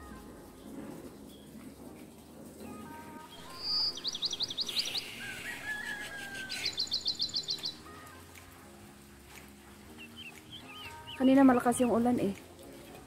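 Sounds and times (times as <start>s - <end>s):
songbird singing: 2.6s - 8.4s, 9.3s - 12.6s.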